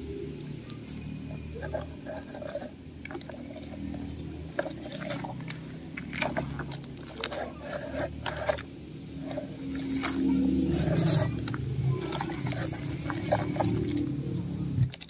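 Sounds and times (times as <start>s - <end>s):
toy truck wheels crunching over dirt: 0.1s - 15.0s
scattered crackles and clicks: 0.3s - 14.1s.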